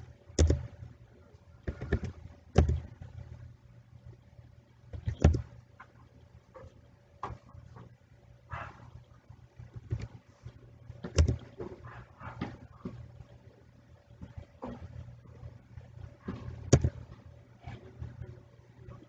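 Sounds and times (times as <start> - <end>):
low steady hum: 0.0 - 19.0
keyboard keys tapping: 0.4 - 0.7, 5.0 - 5.5, 11.0 - 11.6, 16.7 - 17.0.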